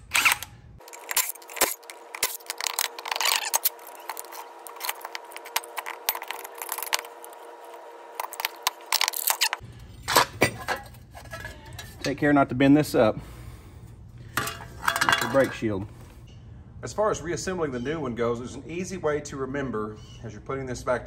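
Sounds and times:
metal clinks and scraping: 8.2s - 12.2s, 14.3s - 15.8s.

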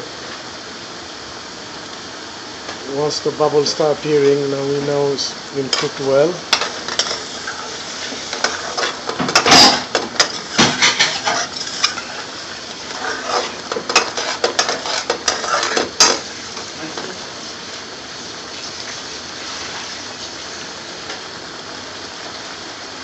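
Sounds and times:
steady hiss: 0.0s - 23.0s
metal utensil scraping a pan: 5.7s - 16.7s.

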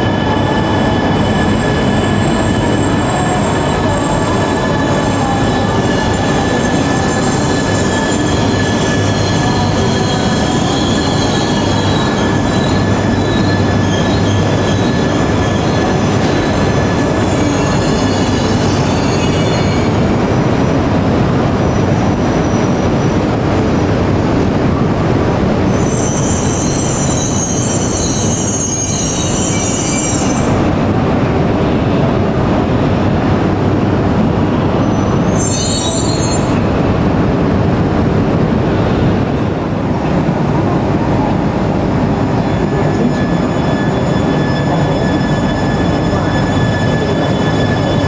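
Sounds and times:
wheel and brake squeals: 0.0s - 20.0s, 25.7s - 30.7s, 34.6s - 36.7s, 42.2s - 48.0s.

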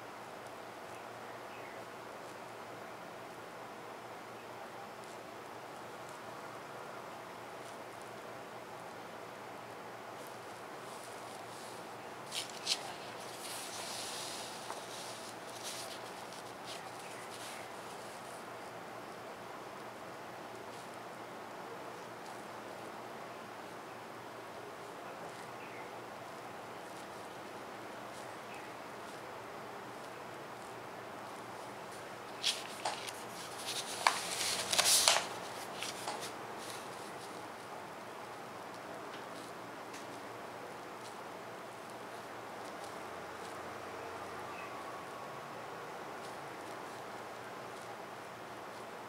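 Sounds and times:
steady hiss: 0.0s - 49.0s
paper rustling: 10.2s - 18.4s, 31.9s - 37.4s
paper sliding on desk: 32.4s - 36.3s.

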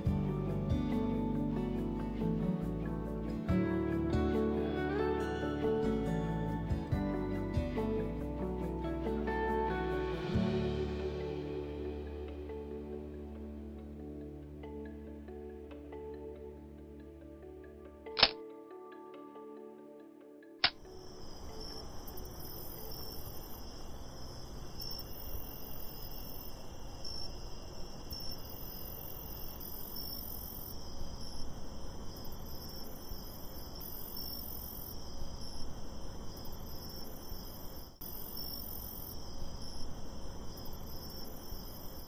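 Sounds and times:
crickets trilling: 20.7s - 42.0s
low background noise: 20.7s - 42.0s.

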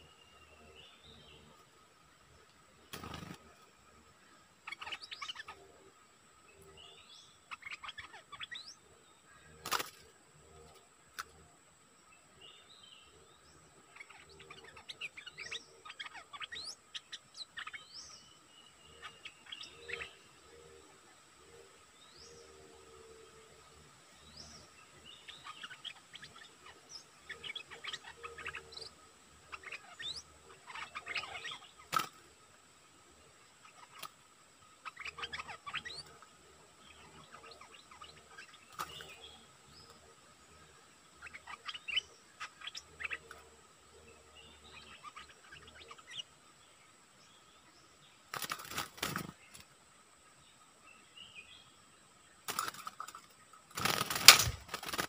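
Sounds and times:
birds chirping sharply: 0.0s - 11.4s, 24.2s - 32.4s, 33.3s - 49.8s, 52.4s - 55.0s
wing flapping: 2.9s - 3.6s, 9.6s - 10.1s, 48.3s - 49.6s, 52.5s - 55.0s.

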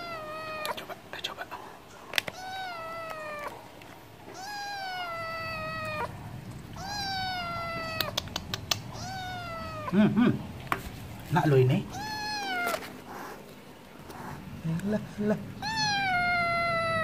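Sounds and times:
cat meowing: 0.0s - 0.8s, 2.3s - 3.6s, 4.3s - 10.0s, 11.8s - 13.0s, 15.6s - 17.0s
sharp clicks: 8.0s - 8.9s.

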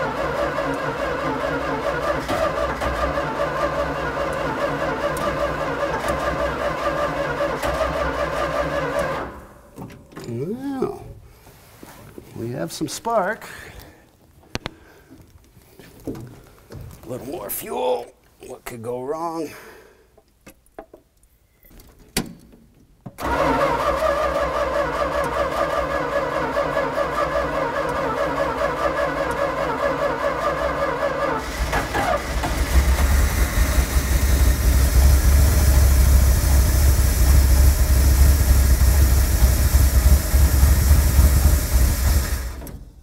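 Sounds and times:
starter cranking engine: 0.0s - 9.4s, 23.2s - 42.9s
engine running with deep rumble: 31.4s - 42.7s.

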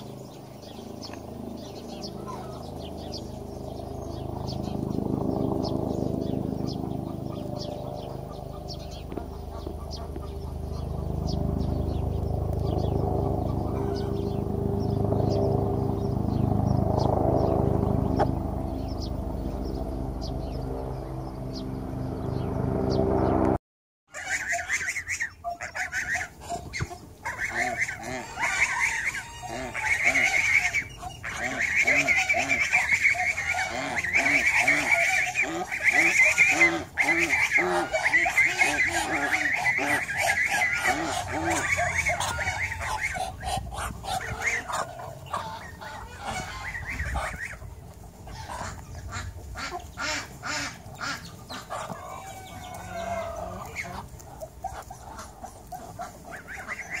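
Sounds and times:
poultry honking calls: 1.0s - 3.2s, 6.0s - 15.4s, 24.1s - 57.0s
chickens clucking: 6.4s - 11.7s, 12.5s - 14.4s, 18.0s - 19.6s, 24.1s - 57.0s
high-pitched chirping: 37.0s - 43.6s.

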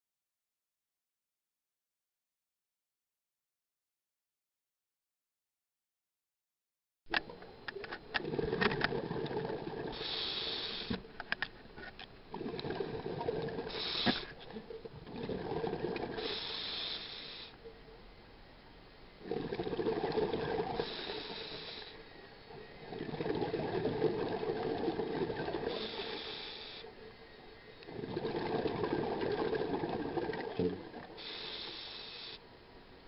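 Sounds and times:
exhaled bubbles rushing: 8.2s - 10.0s, 12.3s - 13.9s, 14.5s - 16.3s, 19.2s - 21.3s, 22.8s - 26.0s, 27.9s - 31.2s
diver breathing through regulator: 9.8s - 11.1s, 12.4s - 14.5s, 15.2s - 17.6s, 19.2s - 22.1s, 23.0s - 27.0s, 31.1s - 32.4s.

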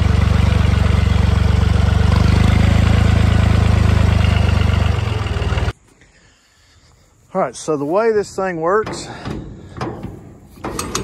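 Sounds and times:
vehicle engine idling: 0.0s - 5.8s.

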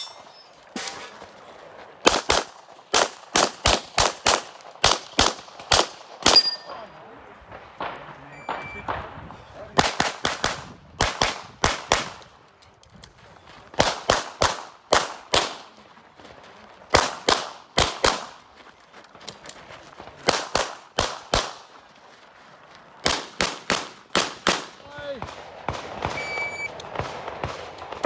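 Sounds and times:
pistol shots: 2.0s - 6.7s, 23.0s - 28.0s.

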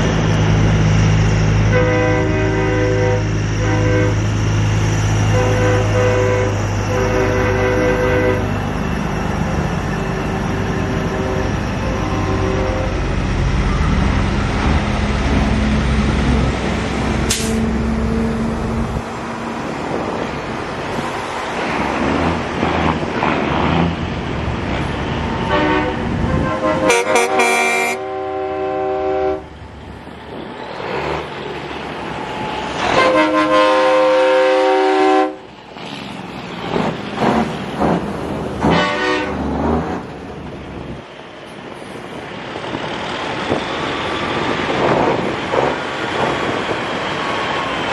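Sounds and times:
diesel trucks driving past: 0.0s - 47.9s
air horns blasting: 1.7s - 4.2s, 5.2s - 8.6s, 11.0s - 13.2s, 25.4s - 29.5s, 32.8s - 35.5s, 38.6s - 39.4s.

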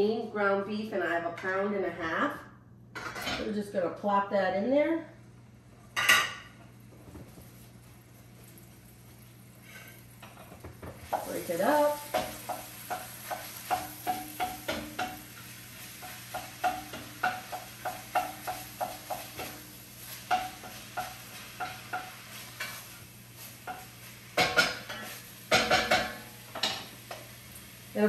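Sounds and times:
utensil scraping a pan: 9.6s - 10.4s, 11.1s - 26.9s
meat sizzling in oil: 11.0s - 28.0s.

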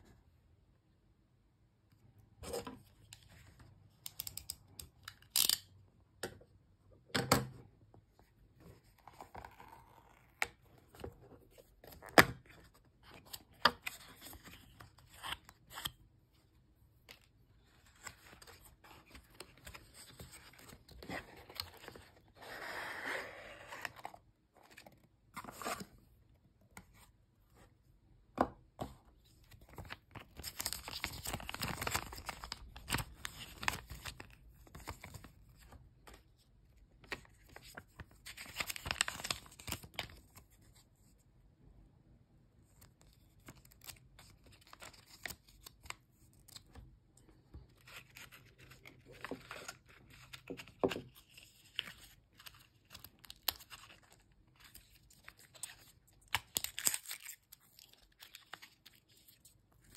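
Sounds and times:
plastic seal strip tearing: 5.1s - 5.7s.

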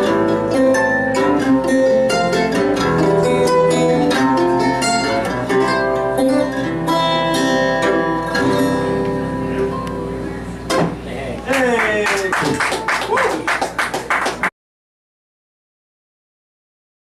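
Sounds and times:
plucked string instrument: 0.0s - 11.4s
acoustic guitar: 0.0s - 11.6s.

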